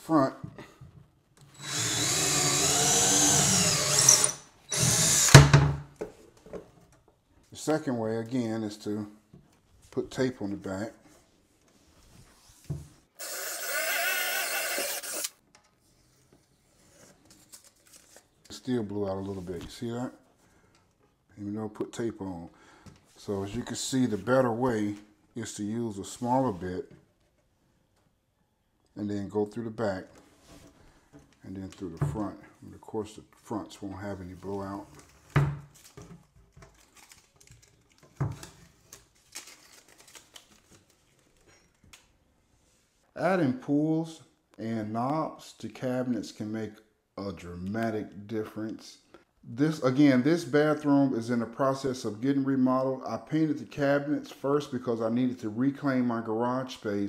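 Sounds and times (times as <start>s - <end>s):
power drill boring through wood: 1.5s - 5.7s, 13.2s - 15.4s
tape being crumpled: 17.3s - 18.4s, 36.6s - 38.1s, 38.8s - 42.1s.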